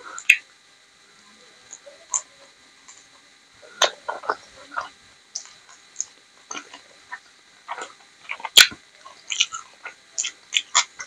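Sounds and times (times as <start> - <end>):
chewing with mouth clicks: 3.8 - 11.0.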